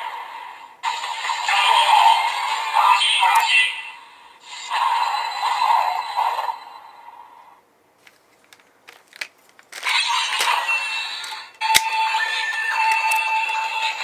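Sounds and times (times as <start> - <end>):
plastic clicks: 8.0 - 10.6, 12.8 - 13.6.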